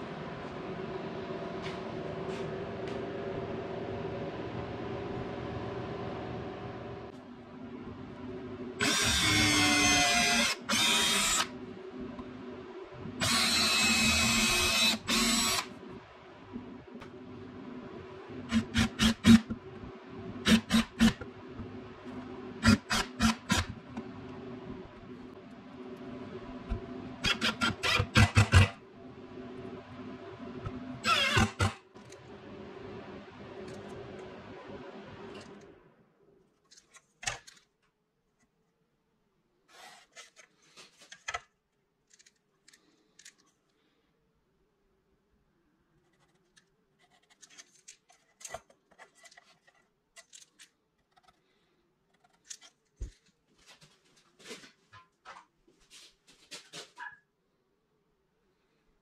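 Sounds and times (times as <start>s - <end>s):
cordless drill drilling into wood: 8.8s - 11.5s, 13.2s - 15.7s, 31.0s - 31.7s.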